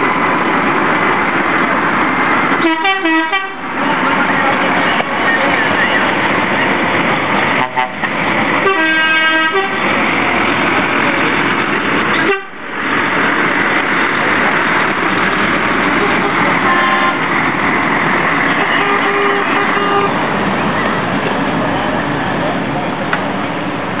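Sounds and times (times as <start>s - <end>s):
diesel truck engine running: 0.0s - 24.0s
truck air horn blasts: 2.6s - 3.7s, 7.5s - 8.0s, 8.6s - 9.8s, 12.2s - 12.6s, 16.0s - 17.2s, 18.6s - 20.2s.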